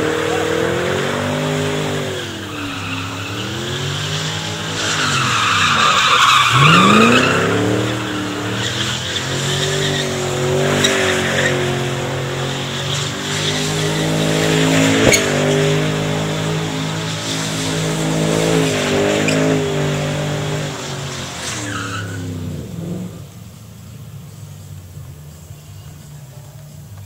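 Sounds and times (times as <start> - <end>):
tyres squealing: 0.0 - 22.3
car engine revving: 0.0 - 27.0.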